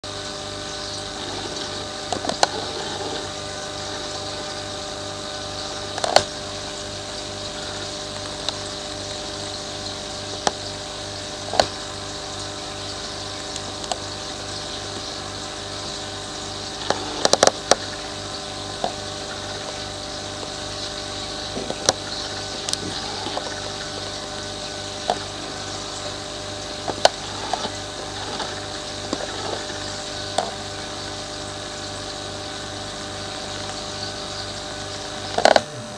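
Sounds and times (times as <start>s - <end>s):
steady tonal hum: 0.0s - 35.9s
sharp clicks and knocks: 5.9s - 6.4s, 11.5s - 11.8s, 16.8s - 17.9s, 26.8s - 30.7s, 35.2s - 35.7s.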